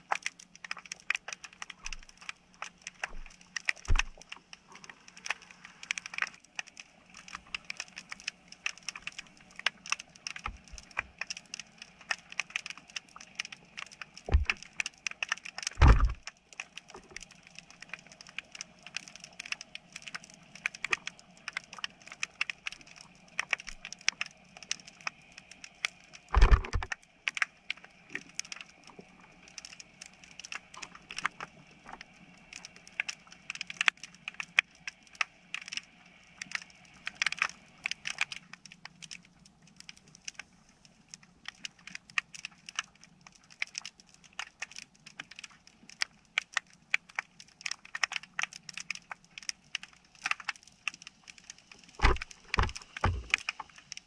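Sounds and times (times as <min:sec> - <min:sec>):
snapping shrimp clicks: 0:00.0 - 0:40.4, 0:41.4 - 0:54.0
loud low thump: 0:15.8 - 0:16.2.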